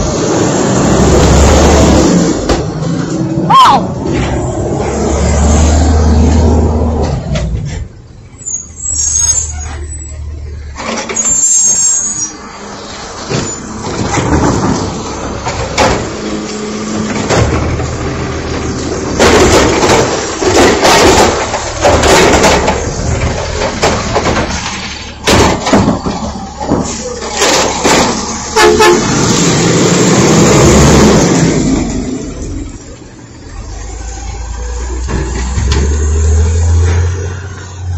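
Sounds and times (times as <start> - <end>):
garbage truck engine running: 0.0 - 37.9
clattering and banging of bin: 13.2 - 31.4.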